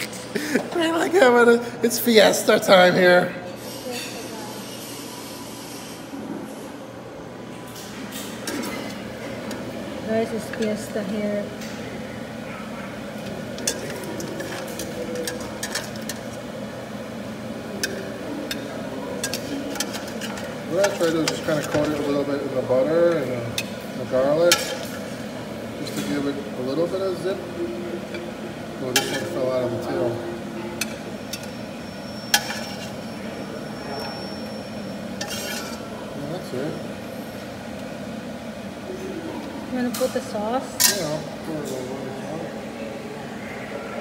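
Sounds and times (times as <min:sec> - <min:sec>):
wok ringing: 0:30.7 - 0:37.0
utensil scraping pan: 0:32.3 - 0:33.0, 0:35.2 - 0:35.8.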